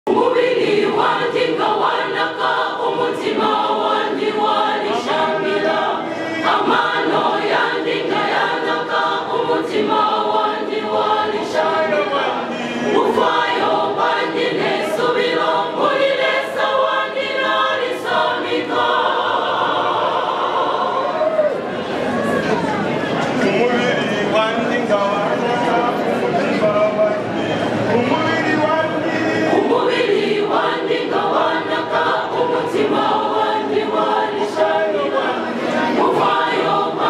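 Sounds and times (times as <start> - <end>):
choir singing a hymn: 0.1 - 22.1, 28.8 - 37.0.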